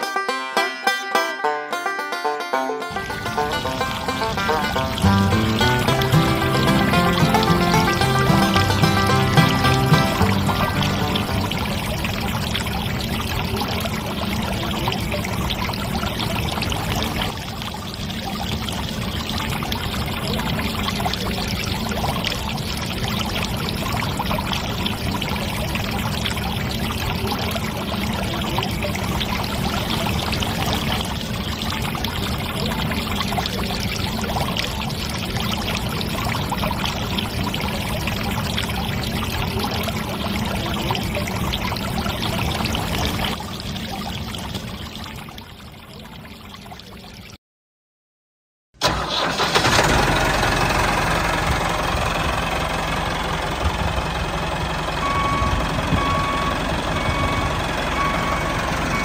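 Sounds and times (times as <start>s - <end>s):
water pouring onto sand: 2.9s - 44.6s.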